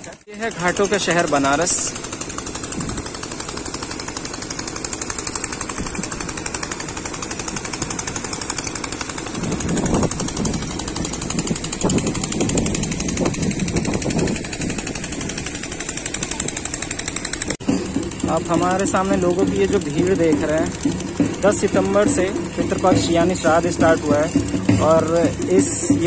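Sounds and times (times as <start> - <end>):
small engine chugging: 0.0 - 26.0.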